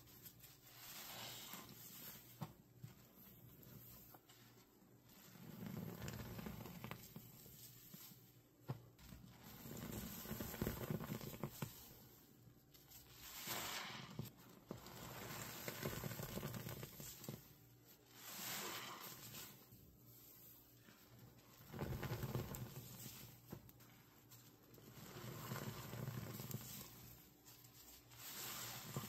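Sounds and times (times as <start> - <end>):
sponges squelching in soapy water: 0.0 - 8.4, 9.0 - 29.0
water rushing out of sponge: 13.2 - 14.3, 18.1 - 19.6.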